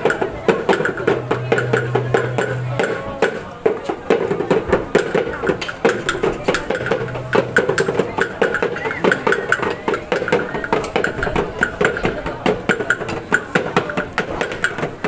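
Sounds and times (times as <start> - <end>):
group singing in chorus: 0.0 - 3.5, 5.9 - 11.1
sharp percussive beats: 0.0 - 15.0.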